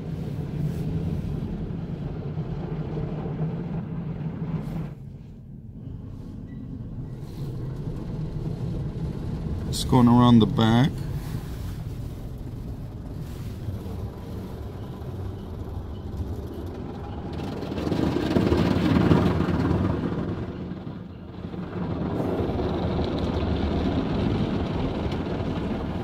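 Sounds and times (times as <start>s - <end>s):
muffled car-wash brush swishing: 0.0s - 3.0s, 4.2s - 5.5s, 10.0s - 14.8s.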